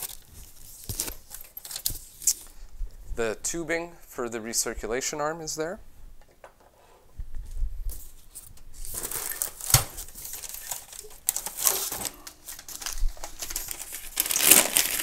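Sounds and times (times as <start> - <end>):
cardboard packaging rustling: 0.0 - 2.6, 7.9 - 15.0.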